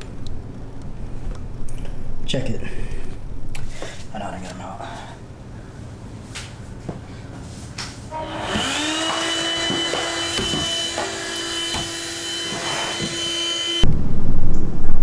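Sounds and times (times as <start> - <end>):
electric motor whining: 8.1 - 13.9.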